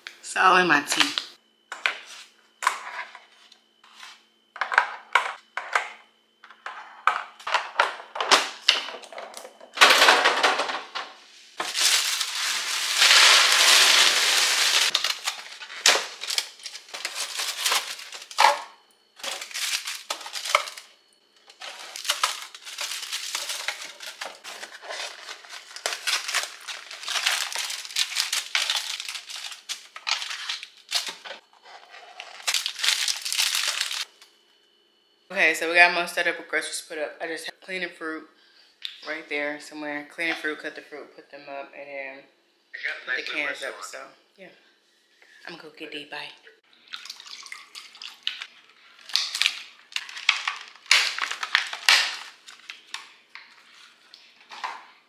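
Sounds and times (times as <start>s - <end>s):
knocks and clinks of groceries: 4.6s - 20.9s, 21.5s - 31.4s
packaging rustling: 11.6s - 34.2s, 49.0s - 54.8s.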